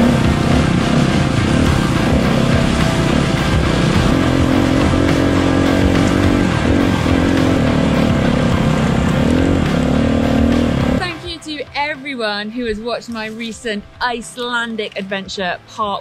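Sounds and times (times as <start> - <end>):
dirt bike engine revving: 0.0 - 11.0.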